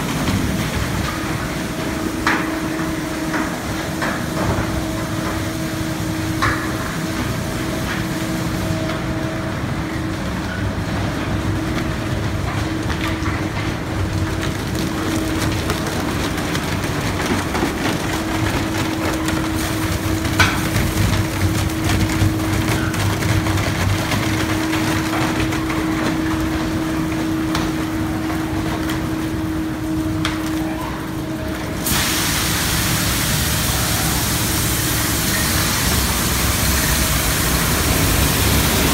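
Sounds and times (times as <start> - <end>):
steady machine hum: 0.0 - 38.9
loud steady hiss: 31.8 - 38.9.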